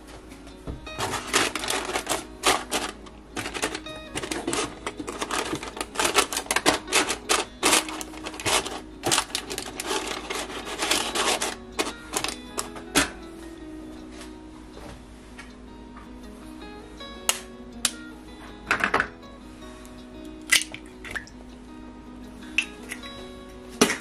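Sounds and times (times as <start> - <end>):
soft background music: 0.0 - 24.0
kitchen utensils clacking: 0.9 - 13.2.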